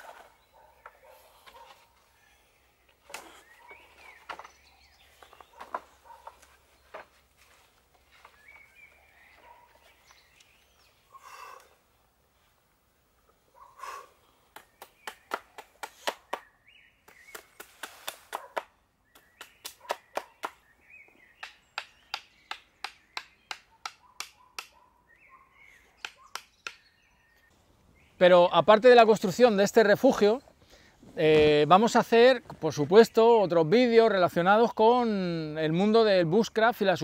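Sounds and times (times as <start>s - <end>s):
faint bird chirps: 19.0s - 28.2s.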